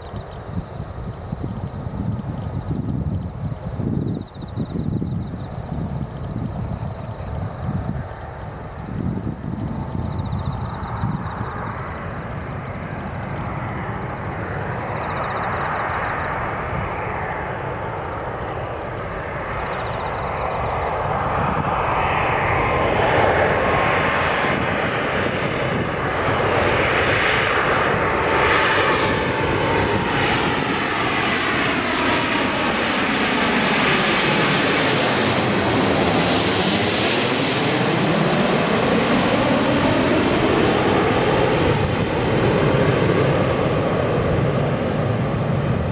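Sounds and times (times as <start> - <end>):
jet engines on landing approach: 0.0 - 45.9.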